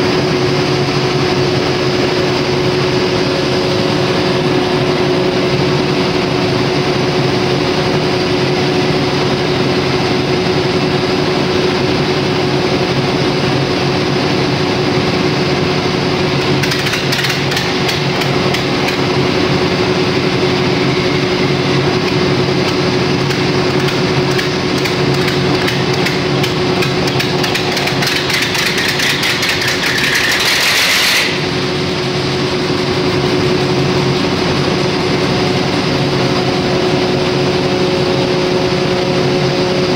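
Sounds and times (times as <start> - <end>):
diesel generator engine running: 0.0 - 39.9
fast metallic knocking clatter: 16.4 - 19.2, 22.6 - 31.5.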